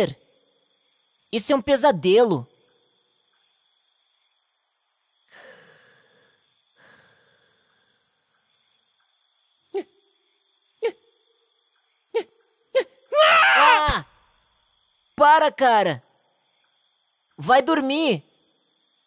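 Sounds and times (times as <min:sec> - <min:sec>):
crickets chirping: 0:00.0 - 0:19.0
soft breathy sounds: 0:05.3 - 0:08.2.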